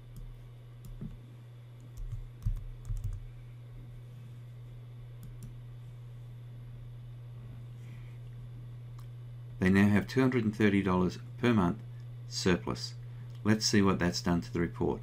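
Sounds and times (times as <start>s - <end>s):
low electrical hum: 0.0s - 15.0s
keyboard keystrokes: 2.0s - 3.2s.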